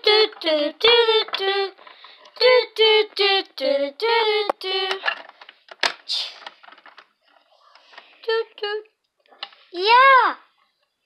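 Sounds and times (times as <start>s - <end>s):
child singing: 0.0s - 1.8s, 2.4s - 5.1s.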